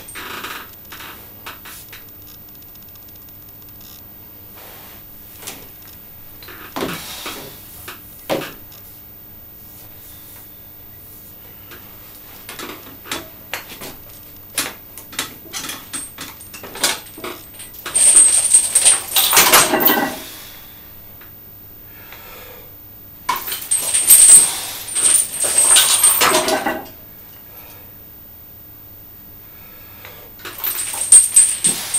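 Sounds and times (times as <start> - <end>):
steel chains clinking: 15.5 - 20.3, 23.3 - 27.0, 30.5 - 31.9
dense metallic chain rattling: 17.7 - 20.2, 23.3 - 26.9, 30.5 - 31.9.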